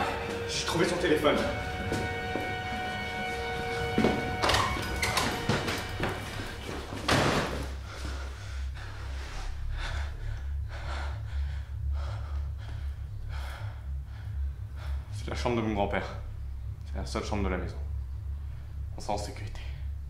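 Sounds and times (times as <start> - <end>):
low steady hum: 0.0 - 20.0
person breathing hard: 7.6 - 15.3.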